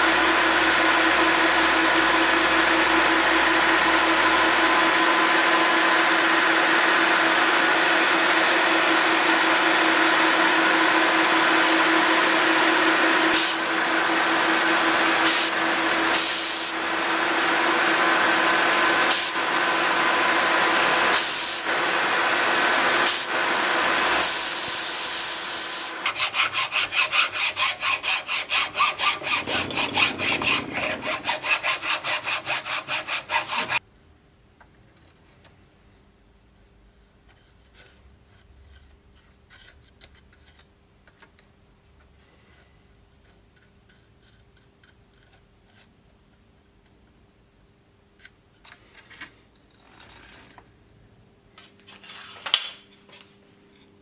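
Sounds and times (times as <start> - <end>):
milling machine cutting wood: 0.0 - 25.0, 25.9 - 33.8
hand rubbing strokes on wood: 26.2 - 33.8.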